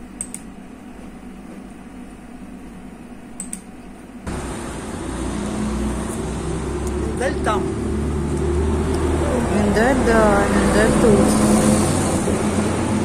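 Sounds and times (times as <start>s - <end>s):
room hum: 0.0s - 13.0s
computer mouse double clicks: 0.2s - 0.5s, 3.4s - 3.7s
outdoor street noise: 4.3s - 13.0s.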